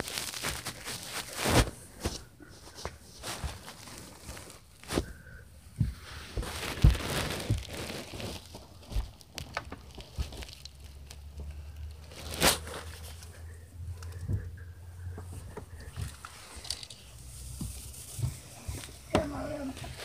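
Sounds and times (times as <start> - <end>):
cloth brushing over microphone: 16.0 - 20.0.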